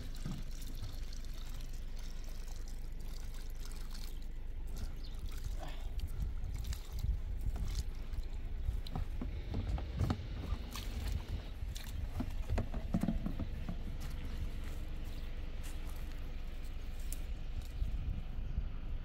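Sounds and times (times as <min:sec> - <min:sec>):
low rumble: 0:04.3 - 0:19.0.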